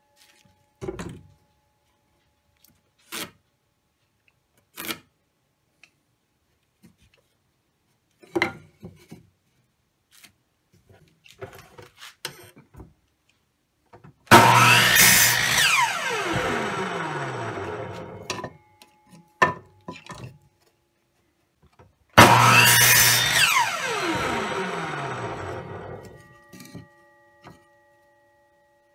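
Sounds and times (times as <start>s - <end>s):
miter saw cutting wood: 14.3s - 18.3s, 22.2s - 26.8s
saw motor winding down: 14.3s - 18.3s, 22.2s - 26.2s.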